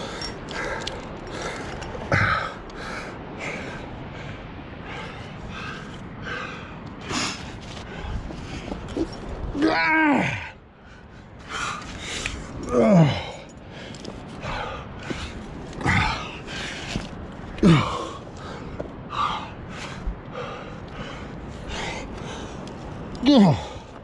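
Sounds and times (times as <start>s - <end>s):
person grunting: 12.7s - 13.3s, 17.6s - 18.0s, 23.2s - 23.8s.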